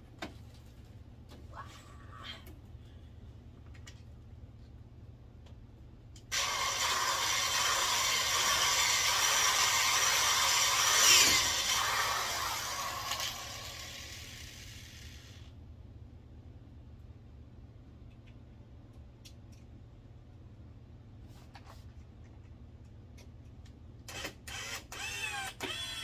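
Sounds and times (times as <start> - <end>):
electric drill boring into wood: 6.3 - 15.5, 24.1 - 26.0.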